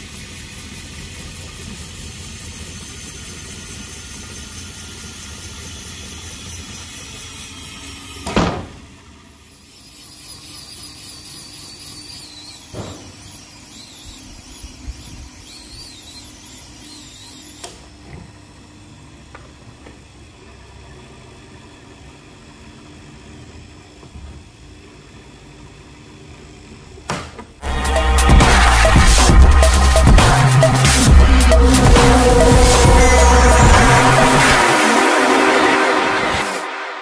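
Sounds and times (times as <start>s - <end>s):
drill bit squealing in metal: 9.4s - 17.7s, 27.6s - 34.8s
drill motor hum: 27.6s - 35.7s.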